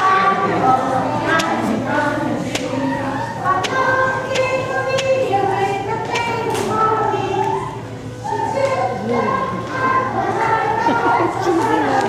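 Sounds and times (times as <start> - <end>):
group of voices singing: 0.0 - 12.0.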